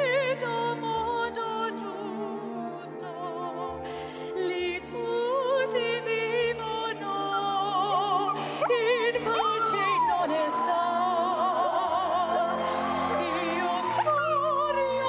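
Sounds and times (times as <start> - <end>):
orchestral backing track: 0.0 - 15.0
woman singing opera-style: 0.0 - 15.0
dog howling: 8.2 - 15.0.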